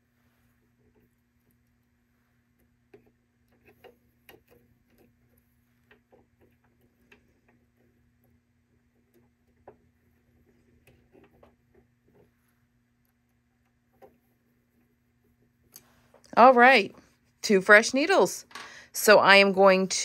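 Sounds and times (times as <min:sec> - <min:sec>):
low steady hum: 0:00.0 - 0:20.0
small clicks and taps: 0:02.6 - 0:12.3.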